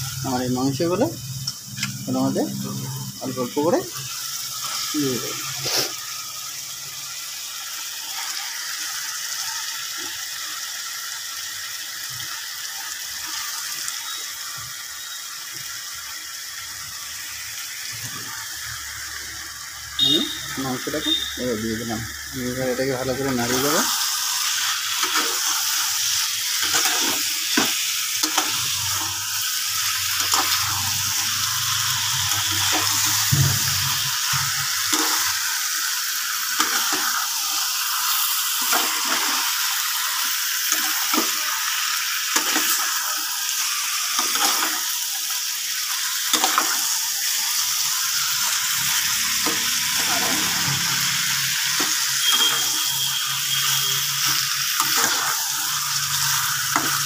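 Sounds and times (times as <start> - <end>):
meat sizzling in hot oil: 0.0 - 57.0
spatula scraping a pan: 23.4 - 29.2, 48.2 - 57.0.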